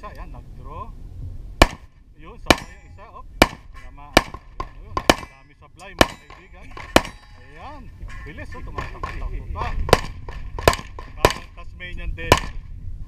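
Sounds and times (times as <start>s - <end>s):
pistol shots: 1.6s - 1.9s, 2.5s - 2.8s, 3.4s - 7.3s, 9.9s - 11.5s, 12.3s - 12.6s.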